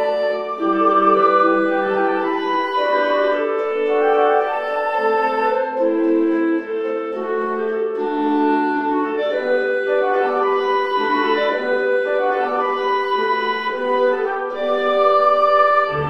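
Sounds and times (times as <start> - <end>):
instrumental theme music: 0.0 - 16.0.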